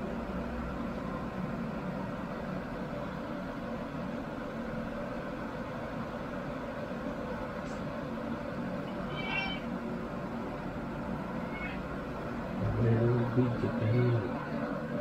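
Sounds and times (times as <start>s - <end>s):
cat mewing: 8.8s - 9.8s, 11.3s - 12.0s.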